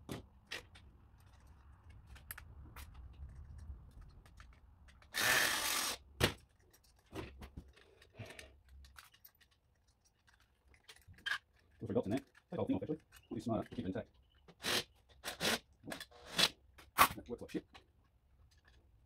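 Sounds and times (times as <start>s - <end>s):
cordless drill running: 5.1s - 6.0s.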